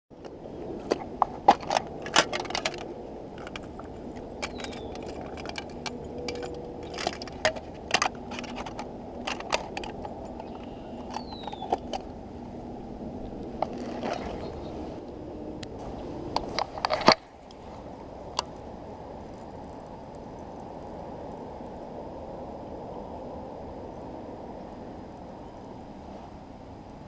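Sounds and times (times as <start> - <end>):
metal lures jangling: 1.5 - 12.1.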